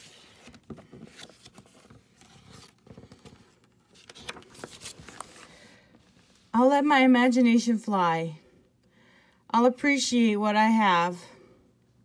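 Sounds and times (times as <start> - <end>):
paper pages rustling: 0.0 - 6.5.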